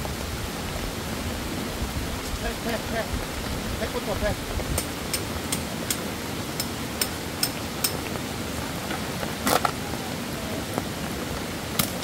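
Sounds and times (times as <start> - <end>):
rain hiss: 0.0 - 12.0
tent pegs hammered into gravel: 4.8 - 8.1, 11.7 - 12.0.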